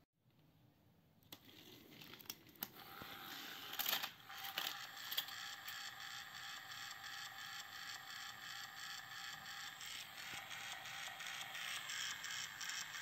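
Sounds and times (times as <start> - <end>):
plastic toy clicks and clatter: 1.3 - 13.0
toy train motor whine: 2.7 - 13.0.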